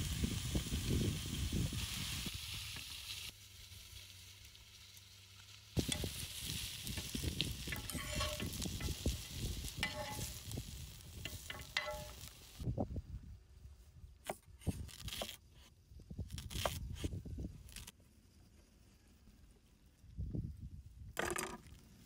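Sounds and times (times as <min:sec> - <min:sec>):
food sizzling on a griddle: 0:00.0 - 0:12.7
metal spatula scraping a griddle: 0:05.8 - 0:12.6.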